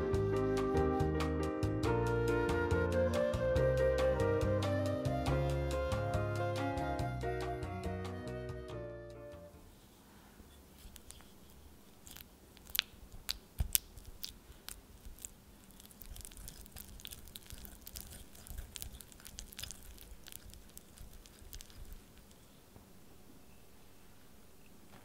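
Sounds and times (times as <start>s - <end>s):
butter squishing: 10.6s - 22.8s.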